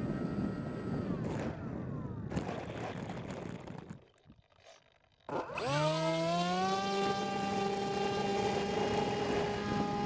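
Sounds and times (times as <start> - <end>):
electric motor and propeller humming: 0.0 - 10.0.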